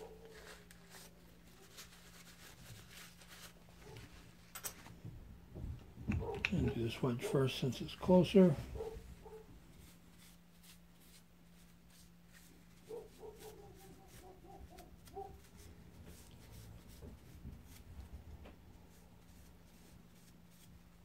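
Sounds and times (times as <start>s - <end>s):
low electrical hum: 0.0s - 21.0s.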